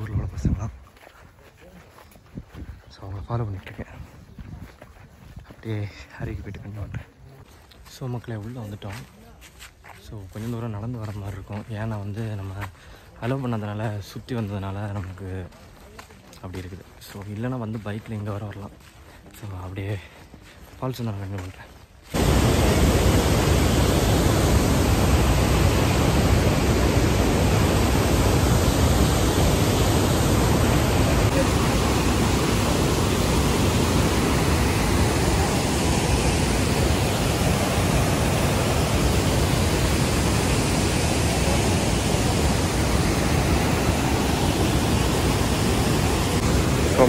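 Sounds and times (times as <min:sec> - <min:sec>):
waterfall rushing: 0:22.2 - 0:47.0.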